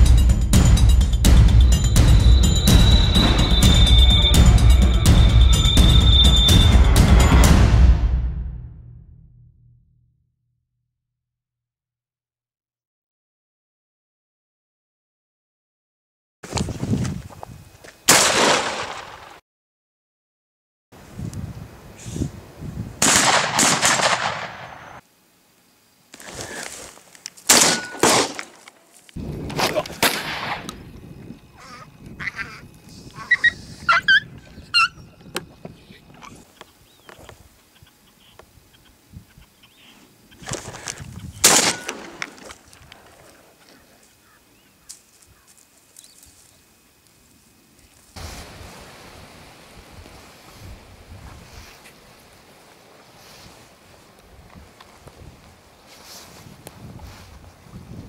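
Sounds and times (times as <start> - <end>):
shotgun shot: 18.1 - 19.3, 23.0 - 25.0, 27.5 - 28.5, 30.0 - 30.8, 41.4 - 42.3
wind buffeting microphone: 21.0 - 23.0, 29.2 - 36.4, 40.4 - 41.5, 56.2 - 58.0.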